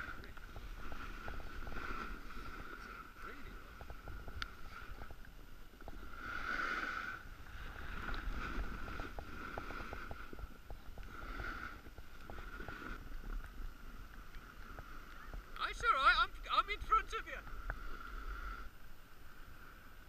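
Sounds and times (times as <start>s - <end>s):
wind rumble on microphone: 0.0s - 20.0s
snowboard scraping over snow: 5.8s - 13.9s.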